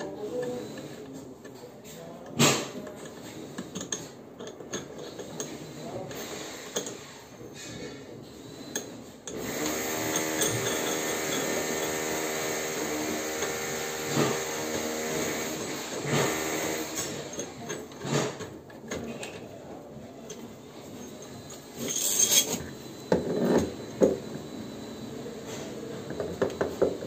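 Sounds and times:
parts clicking and knocking: 0.0s - 7.8s, 8.6s - 24.4s, 26.0s - 27.0s
power drill running: 9.3s - 17.4s.

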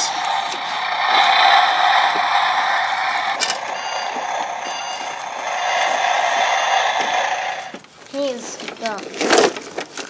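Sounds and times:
toy truck engine noise: 0.0s - 10.0s
short repeating beeps: 3.4s - 5.2s.

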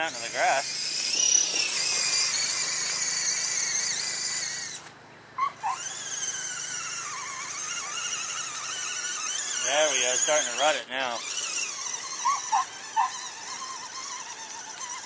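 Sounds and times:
rc car electric motor whining: 0.0s - 15.0s.

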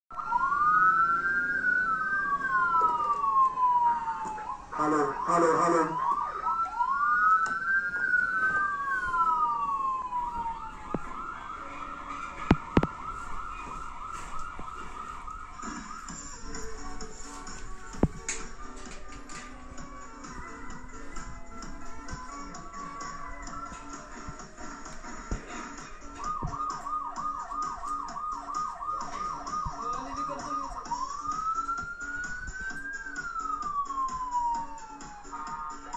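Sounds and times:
electronic police siren: 0.1s - 35.9s
toy siren yelping and wailing: 0.2s - 12.9s.

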